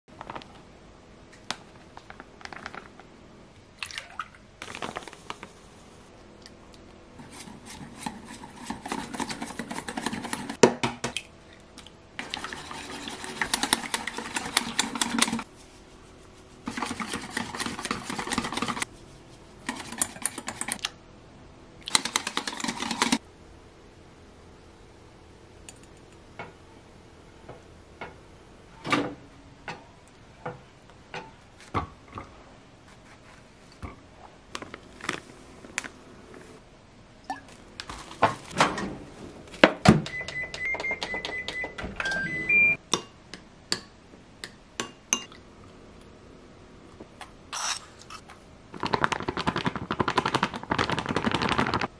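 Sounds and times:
whisk beating in metal bowl: 7.2 - 10.6, 12.2 - 15.8, 16.6 - 18.9.

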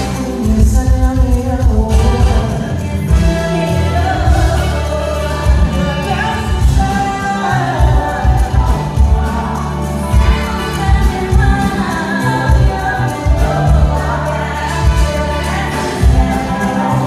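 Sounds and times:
band music with pulsing bass: 0.0 - 17.0
live singing: 0.0 - 17.0.

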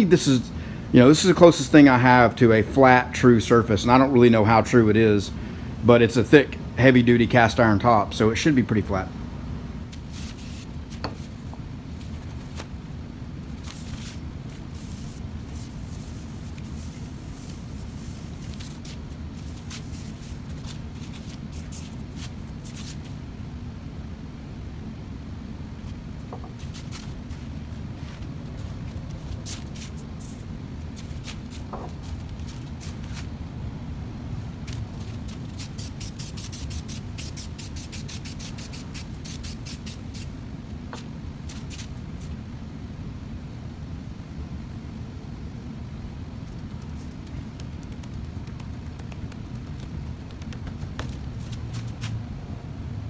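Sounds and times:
sandpaper sheets handled: 9.9 - 12.8, 13.5 - 23.2, 26.6 - 33.3, 46.5 - 52.2
spray hissing: 35.5 - 40.3.

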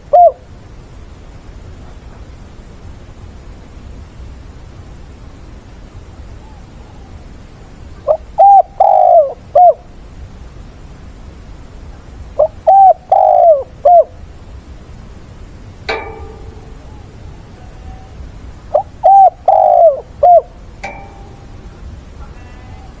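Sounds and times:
dove cooing: 0.0 - 0.4, 6.4 - 7.3, 8.0 - 9.8, 12.4 - 14.2, 15.9 - 23.0.

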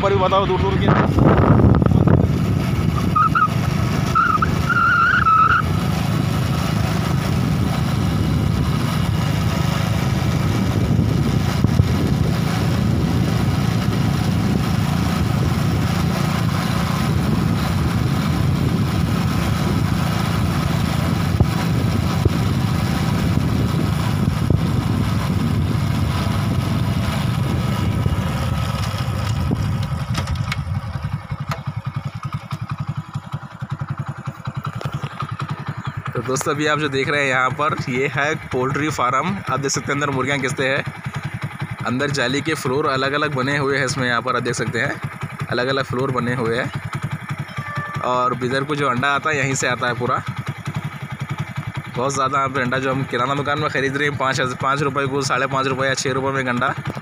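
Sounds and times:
motorcycle engine running: 0.0 - 57.0
road and wind noise: 0.0 - 57.0.

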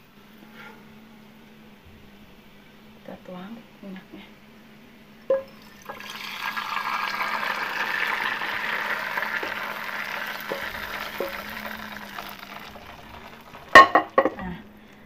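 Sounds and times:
hot oil pouring into bowl: 5.4 - 14.4.

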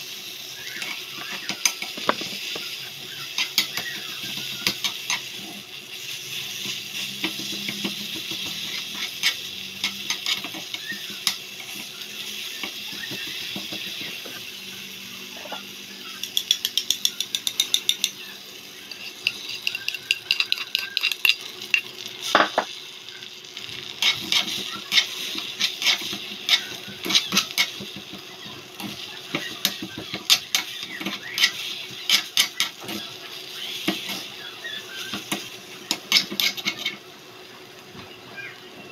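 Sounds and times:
vegetables sizzling in wok: 0.0 - 38.9
spatula scraping and tapping wok: 0.6 - 14.4, 15.4 - 18.2, 18.9 - 22.8, 23.9 - 37.0.

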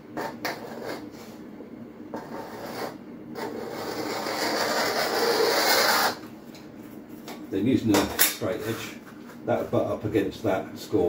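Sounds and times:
caliper scraping vinyl tile: 0.2 - 1.1, 2.1 - 6.2.

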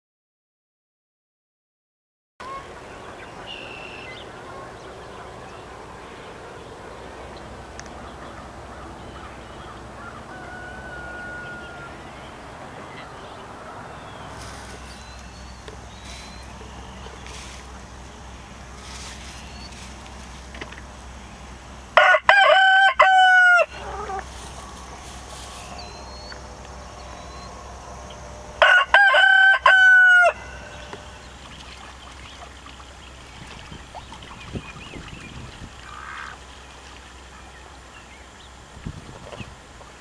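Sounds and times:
rooster crowing: 9.7 - 12.4, 22.0 - 26.3, 26.9 - 31.3.

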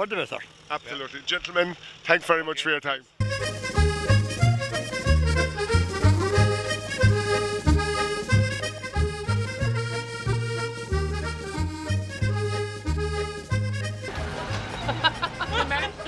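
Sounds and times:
repeating bass: 3.2 - 14.2
accordion tune: 3.2 - 16.0.

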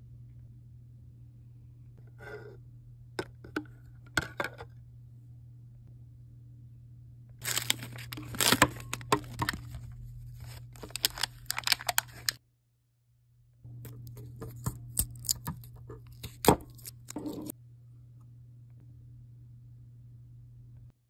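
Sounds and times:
low steady hum: 0.0 - 21.0
plastic wrapping crinkling and tearing: 7.4 - 12.4, 13.9 - 17.4.

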